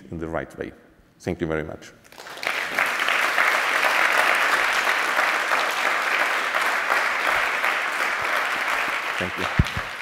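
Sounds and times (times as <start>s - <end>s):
audience applauding: 2.1s - 10.0s.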